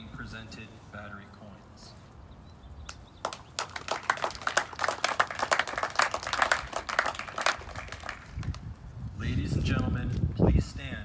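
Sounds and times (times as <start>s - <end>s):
audience applauding: 3.2s - 8.6s.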